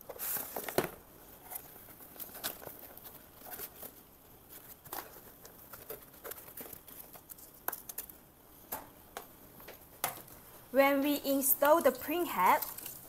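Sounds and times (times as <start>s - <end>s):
foam and cardboard rustling: 0.0s - 8.1s.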